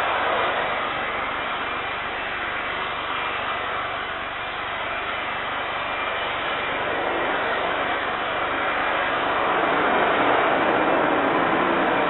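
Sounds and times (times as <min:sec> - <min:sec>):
jet engines running: 0:00.0 - 0:12.0.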